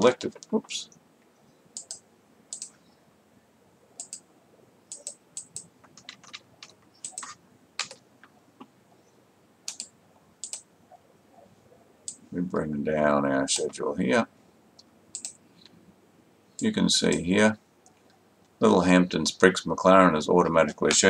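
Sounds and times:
mouse and keyboard clicks: 0:01.8 - 0:02.7, 0:04.0 - 0:04.2, 0:04.9 - 0:08.0, 0:09.7 - 0:10.7, 0:15.1 - 0:15.7.

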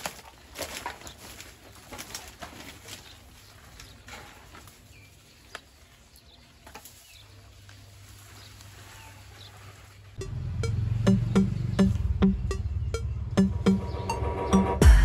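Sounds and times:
footsteps crunching plastic bottles: 0:00.0 - 0:09.3
birds calling: 0:00.0 - 0:15.0.

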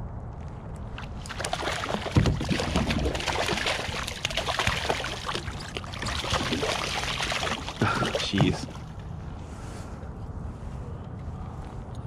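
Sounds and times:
fish thrashing and splashing: 0:01.0 - 0:09.1.

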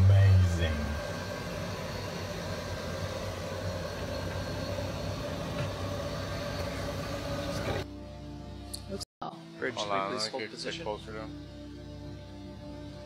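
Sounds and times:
mechanical hum with whine: 0:00.0 - 0:07.9.

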